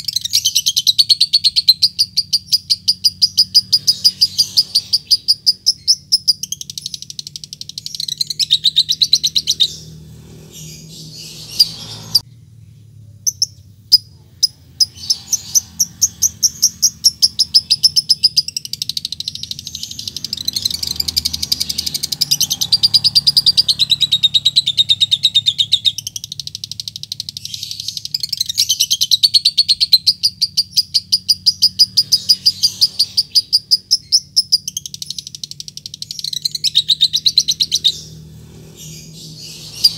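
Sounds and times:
lovebird chattering trill: 0:00.0 - 0:10.0, 0:13.2 - 0:38.2.

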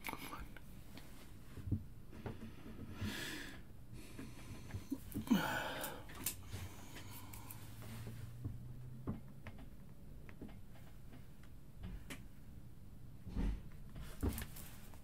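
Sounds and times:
man breathing heavily: 0:02.2 - 0:08.2.

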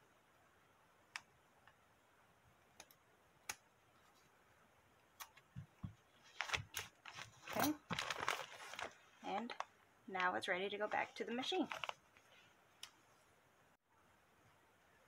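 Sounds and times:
towel and paper crackling: 0:06.2 - 0:12.5.

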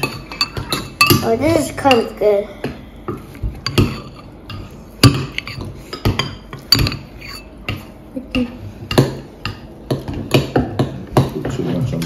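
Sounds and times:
metal spoon scraping ceramic bowl: 0:06.8 - 0:07.5.

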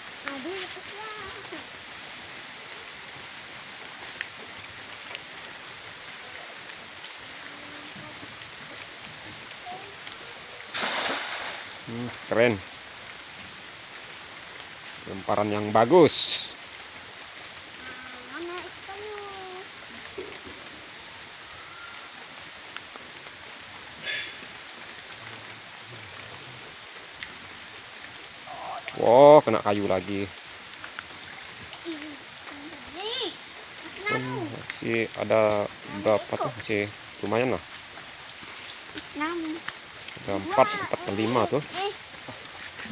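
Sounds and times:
drizzle falling on river: 0:00.0 - 0:42.9
net splashing in water: 0:10.7 - 0:11.8.

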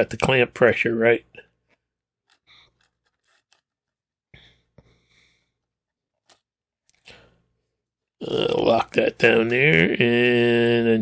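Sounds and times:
faint clicks and scrapes of clamp: 0:01.6 - 0:04.0.

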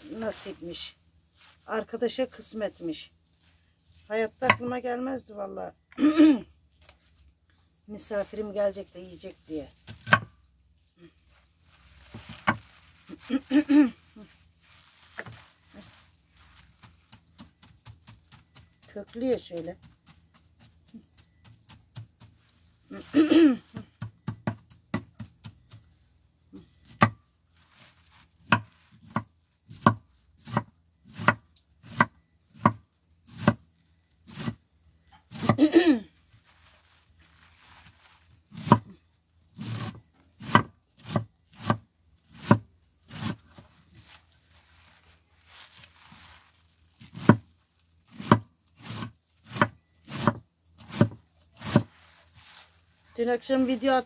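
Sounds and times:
knife chopping on cutting board: 0:09.9 - 0:10.3, 0:26.9 - 0:27.2, 0:28.4 - 0:33.6, 0:35.3 - 0:35.6, 0:38.5 - 0:38.9, 0:39.6 - 0:43.4, 0:47.0 - 0:47.5, 0:48.1 - 0:51.9.

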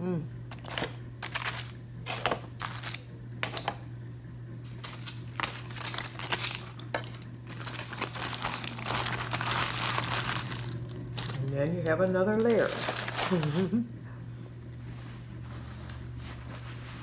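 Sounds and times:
steady low hum: 0:00.0 - 0:17.0
aluminum foil crinkling: 0:00.5 - 0:03.1, 0:04.8 - 0:13.8.

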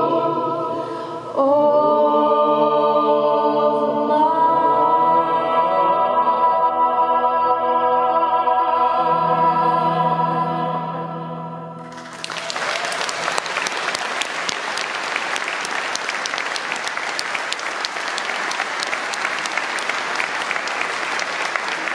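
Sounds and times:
choir holding a chord: 0:00.0 - 0:12.1
audience applause: 0:11.9 - 0:21.9.

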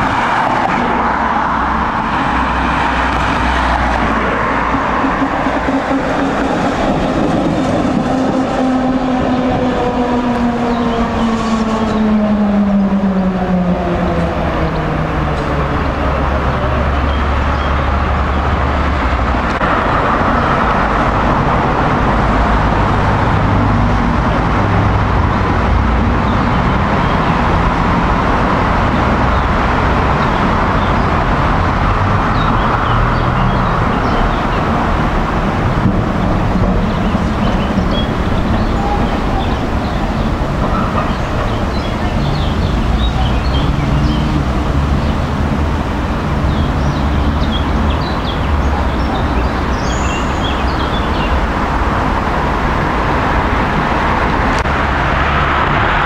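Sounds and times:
cars running: 0:00.0 - 0:56.0
tram rumbling on tracks: 0:00.0 - 0:56.0.

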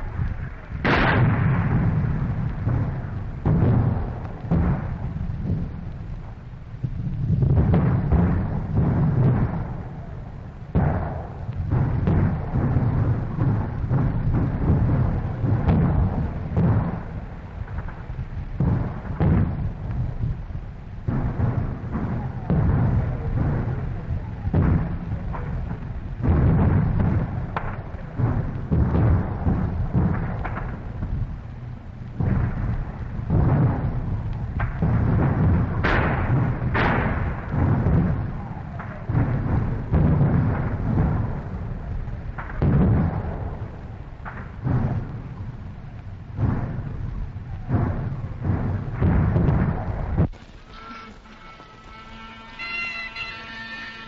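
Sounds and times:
artillery and mortar booms: 0:00.0 - 0:54.0
heavy rumbling explosions: 0:00.0 - 0:54.0
faint bagpipe tones: 0:50.5 - 0:54.0.

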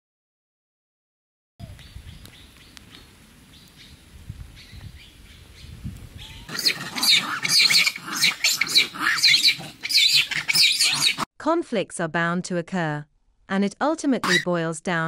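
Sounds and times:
monkeys calling shrilly: 0:06.2 - 0:11.3, 0:14.2 - 0:14.5.

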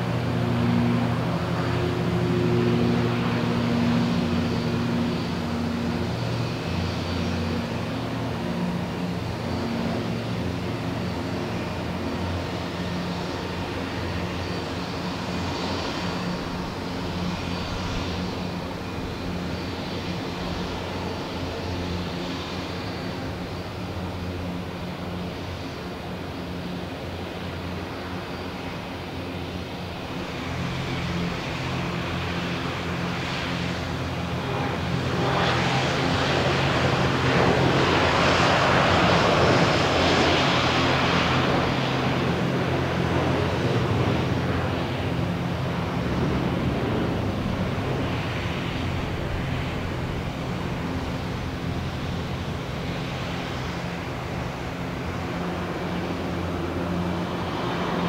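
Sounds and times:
jet engines roaring at takeoff: 0:00.0 - 0:58.0
steady low hum: 0:29.1 - 0:58.0.

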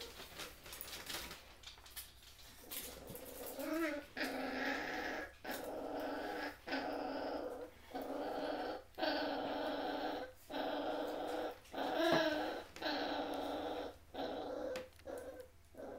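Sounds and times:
puppies growling: 0:02.5 - 0:15.9.

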